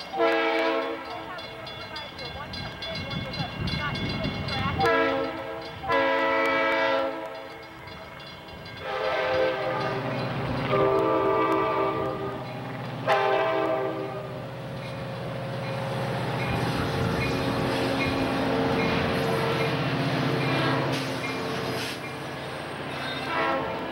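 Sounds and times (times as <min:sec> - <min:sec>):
locomotive air horn blasts: 0:00.0 - 0:01.1, 0:04.7 - 0:07.5, 0:08.8 - 0:10.1, 0:10.7 - 0:12.4, 0:13.0 - 0:14.3, 0:18.6 - 0:21.9, 0:22.9 - 0:23.9.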